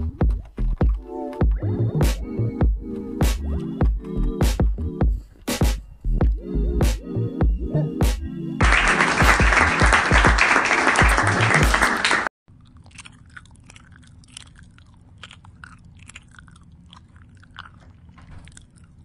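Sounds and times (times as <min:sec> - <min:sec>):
loud music: 0:00.9 - 0:12.3.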